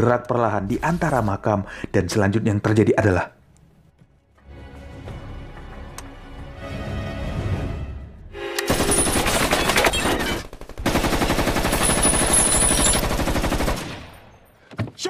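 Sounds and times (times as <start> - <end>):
machine gun automatic fire: 8.7 - 14.2.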